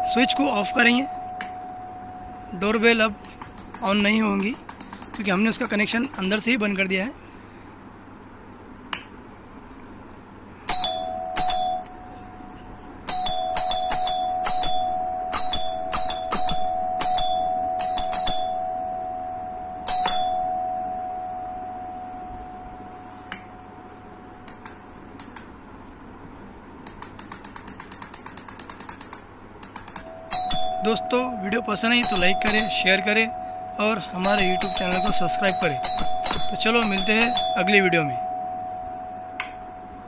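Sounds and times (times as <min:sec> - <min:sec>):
ding-dong doorbell chime: 0:00.0 - 0:03.2, 0:10.7 - 0:24.4, 0:30.0 - 0:40.0
doorbell switch clicks: 0:39.4 - 0:39.6.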